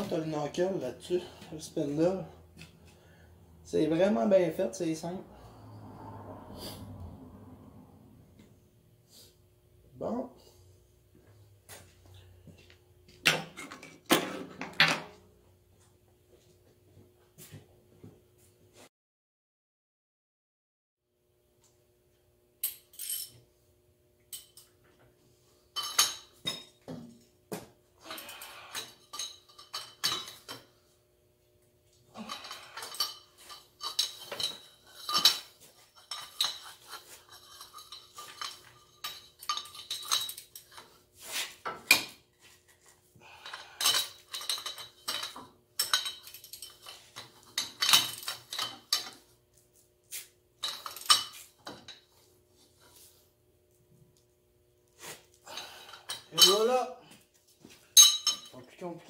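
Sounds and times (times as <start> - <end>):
steel tools clinking and clanking: 25.8 - 26.8, 28.1 - 30.7, 32.2 - 41.0, 43.4 - 49.3, 50.6 - 52.0, 55.5 - 56.8, 57.9 - 58.6.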